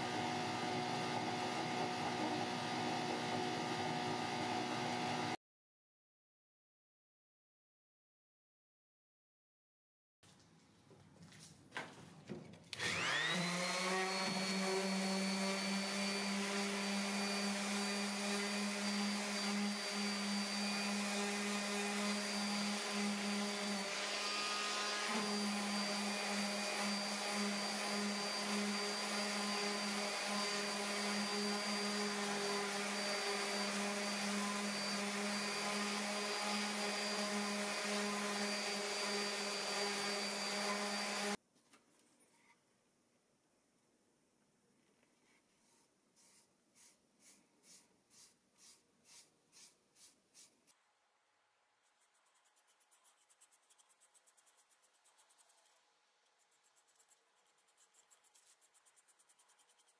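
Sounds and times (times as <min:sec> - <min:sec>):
power tool motor humming: 0:00.0 - 0:05.4, 0:12.8 - 0:41.4.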